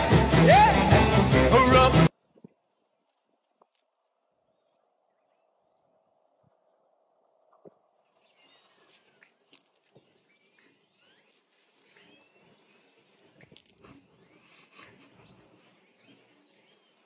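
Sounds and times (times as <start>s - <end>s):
small birds chirping: 7.5s - 17.0s.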